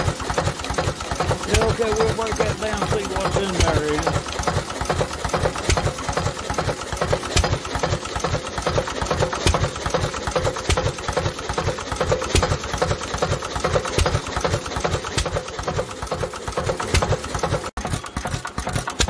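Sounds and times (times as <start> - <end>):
engine clattering: 0.0 - 19.0
engine knock: 0.0 - 19.0.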